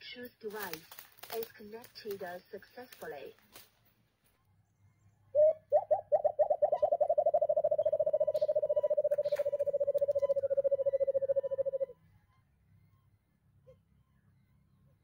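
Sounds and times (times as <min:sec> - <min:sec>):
dove hooting: 0:05.4 - 0:11.9.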